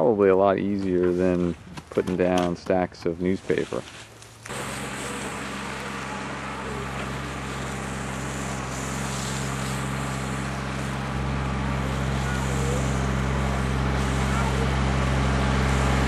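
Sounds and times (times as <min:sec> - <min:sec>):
engine humming: 0:03.9 - 0:16.0.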